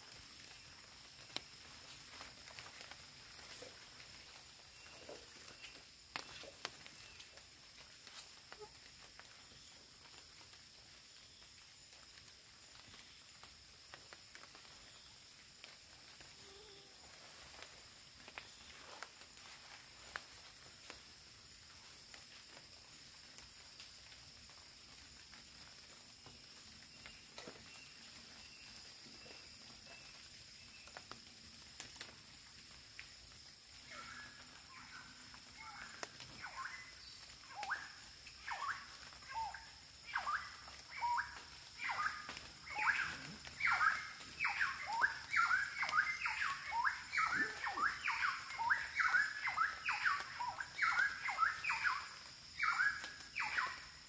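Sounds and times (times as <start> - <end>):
high-pitched insect drone: 33.7 - 54.0
bird chirping: 33.9 - 53.9.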